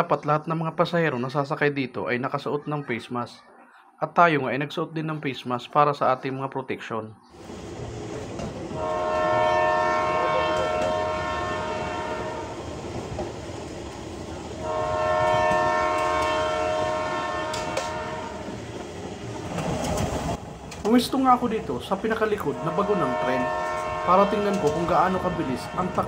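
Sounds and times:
train rumbling on track: 0:07.4 - 0:26.0
train horn blasts: 0:08.7 - 0:12.7, 0:14.6 - 0:18.6, 0:22.4 - 0:26.0.

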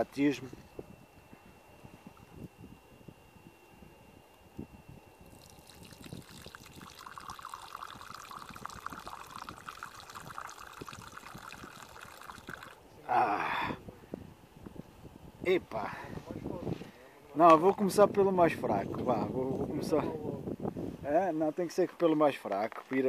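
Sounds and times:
drink trickling into wooden cup: 0:05.2 - 0:12.8.

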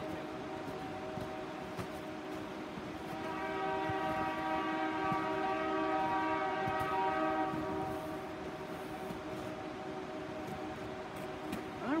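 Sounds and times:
locomotive air horn blast: 0:03.0 - 0:09.2.

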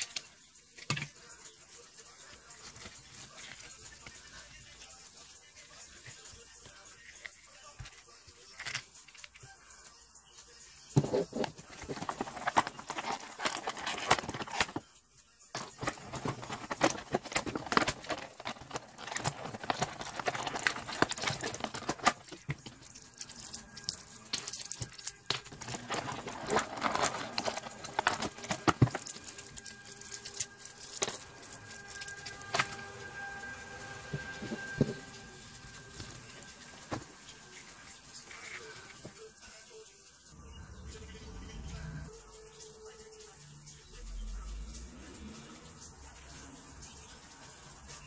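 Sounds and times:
plastic packaging crinkling: 0:11.0 - 0:14.9, 0:15.6 - 0:32.8.

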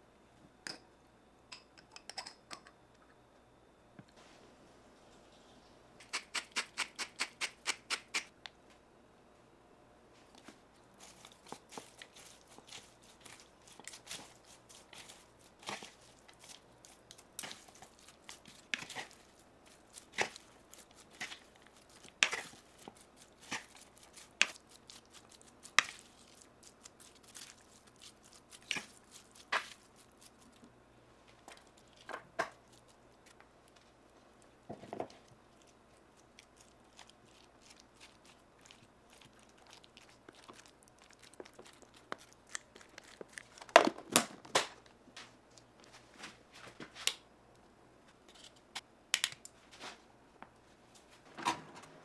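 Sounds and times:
vegetables cracking and crunching: 0:10.9 - 0:30.7, 0:34.9 - 0:44.9.

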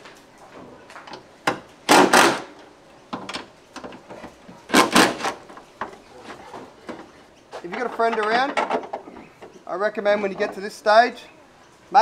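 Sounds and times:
impact wrench bursts: 0:01.9 - 0:02.6.

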